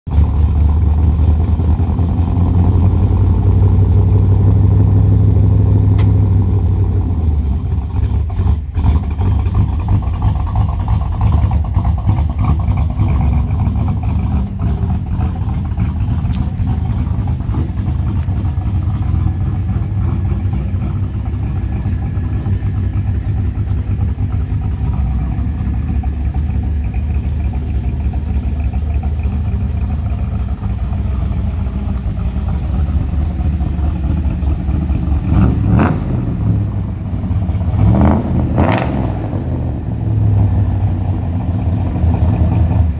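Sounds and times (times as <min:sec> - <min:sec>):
truck engine deep rumble: 0:00.0 - 0:42.9.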